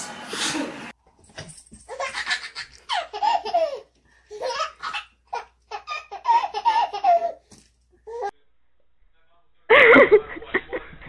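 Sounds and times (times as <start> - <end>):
baby laughing: 1.9 - 7.5.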